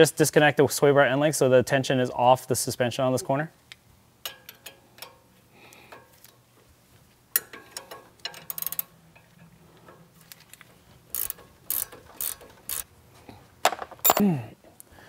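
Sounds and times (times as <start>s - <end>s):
ratchet wrench clicking: 7.3s - 8.9s, 11.1s - 12.8s.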